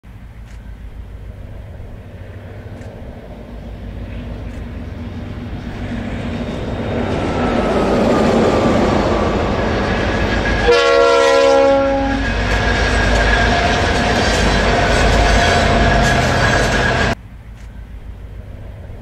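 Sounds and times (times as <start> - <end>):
diesel locomotive engine rumble: 0.0 - 19.0
train chord horn blast: 8.5 - 12.7.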